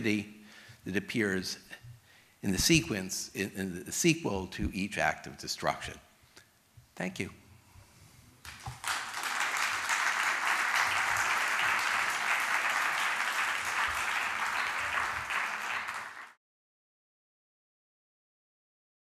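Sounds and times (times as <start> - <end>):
audience applauding: 8.4 - 16.4.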